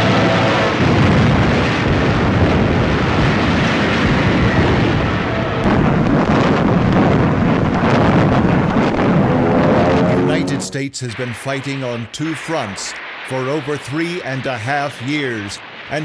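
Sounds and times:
alarm siren: 0.0s - 1.2s, 8.8s - 10.8s
battle explosions rumbling: 0.0s - 16.0s
sharp cracks and blasts: 0.3s - 10.0s, 11.3s - 16.0s.

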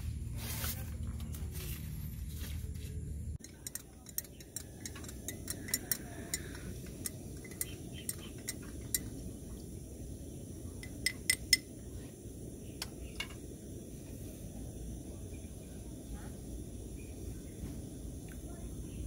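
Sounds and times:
teaspoon clinking against glass mug: 3.4s - 9.2s, 10.8s - 11.7s.

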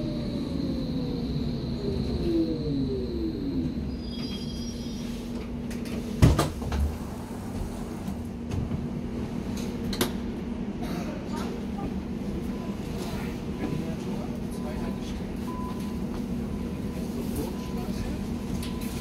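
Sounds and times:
train traction drive whining down: 0.0s - 5.1s.

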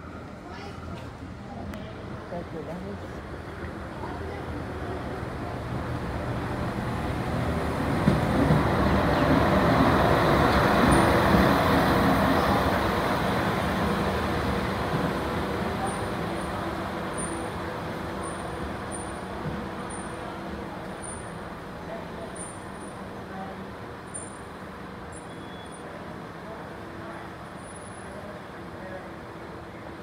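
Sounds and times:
rail vehicle passing on tracks: 0.0s - 30.0s.

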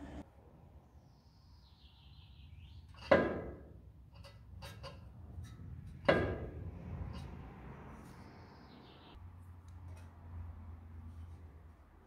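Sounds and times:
sharp ringing knocks: 6.0s - 6.6s.

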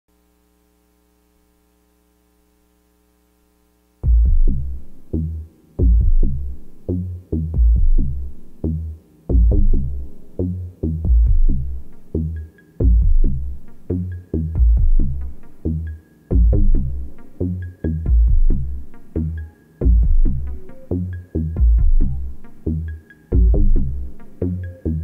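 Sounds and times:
faint synth drone: 3.8s - 25.0s
drum machine hits: 4.0s - 8.3s, 9.3s - 11.7s, 14.6s - 15.2s, 16.3s - 17.0s, 21.6s - 22.2s
pulsing synth bass: 4.0s - 25.0s.

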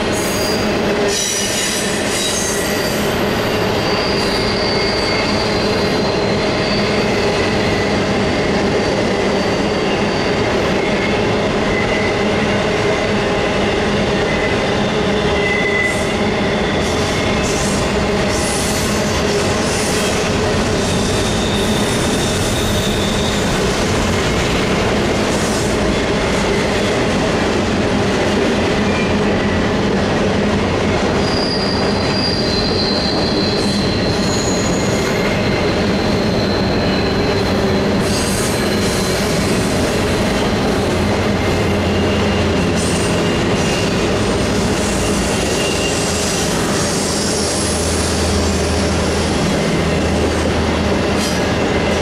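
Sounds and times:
train wheels rumbling on rail: 0.0s - 52.0s
wheels squealing: 1.2s - 8.1s, 20.8s - 23.6s, 31.2s - 40.5s, 41.4s - 52.0s.

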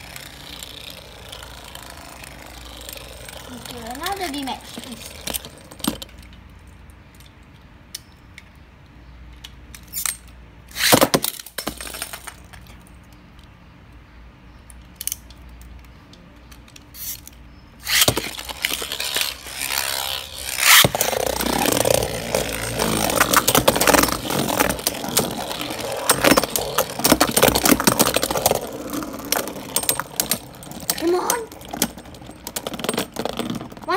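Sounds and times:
spinning tops whirring and scraping: 0.0s - 6.4s, 9.8s - 12.8s, 16.6s - 33.9s
spinning tops striking: 10.7s - 12.7s, 17.0s - 33.9s.

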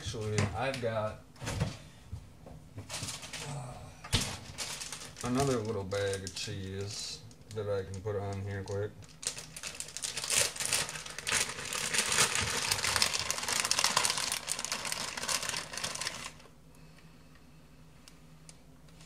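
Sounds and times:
plastic bag crinkling: 2.9s - 16.5s.

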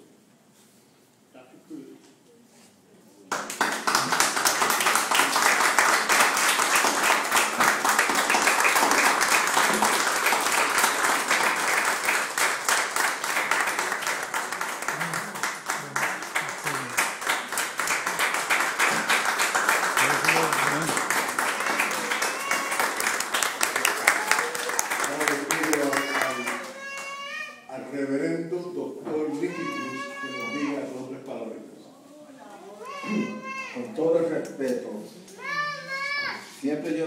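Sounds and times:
audience applauding: 3.3s - 27.2s.

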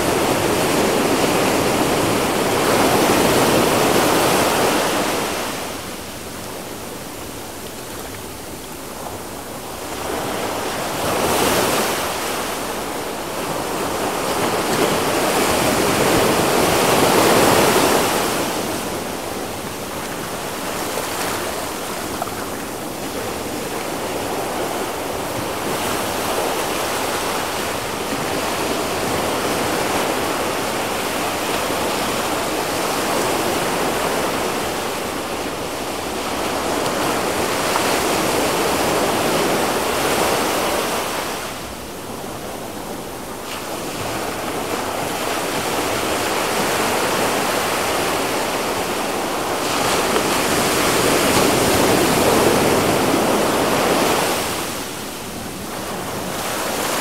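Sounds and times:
small waves breaking on sand: 0.0s - 57.0s.

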